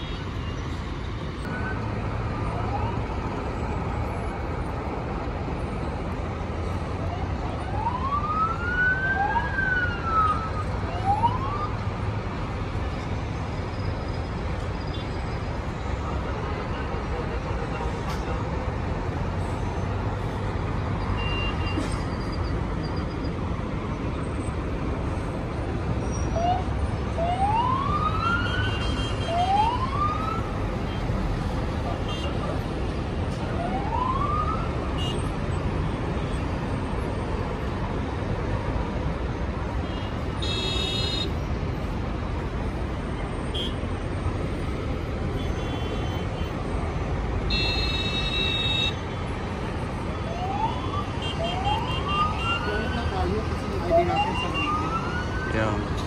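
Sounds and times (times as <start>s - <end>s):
road traffic noise: 0.0s - 56.0s
police siren whoops: 7.1s - 11.8s, 50.2s - 55.8s.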